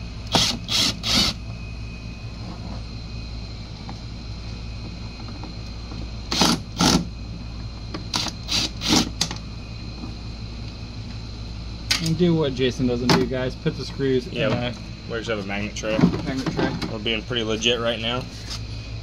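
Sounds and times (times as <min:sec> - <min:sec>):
power screwdriver bursts: 0:00.3 - 0:01.4, 0:06.3 - 0:07.0, 0:08.1 - 0:09.1.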